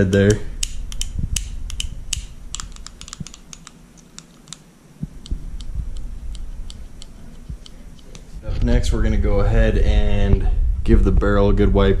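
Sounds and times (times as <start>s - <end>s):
pistol parts clicking: 0.6s - 4.6s.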